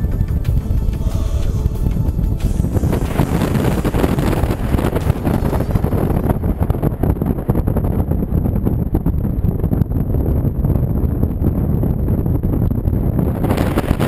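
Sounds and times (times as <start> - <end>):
vehicle driving rumble: 0.0 - 8.4
wind buffeting microphone: 0.0 - 14.0.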